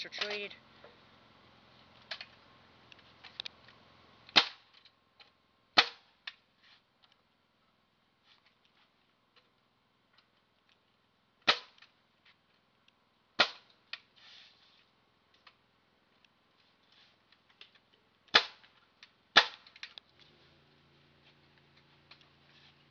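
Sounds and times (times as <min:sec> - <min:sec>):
nail gun shots: 0:04.3 - 0:04.7, 0:05.8 - 0:06.1, 0:11.5 - 0:11.8, 0:13.4 - 0:13.7, 0:18.3 - 0:18.7, 0:19.4 - 0:19.8.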